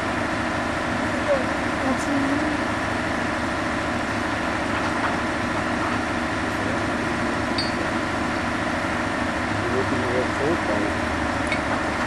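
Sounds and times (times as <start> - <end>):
engine idling: 0.0 - 12.0.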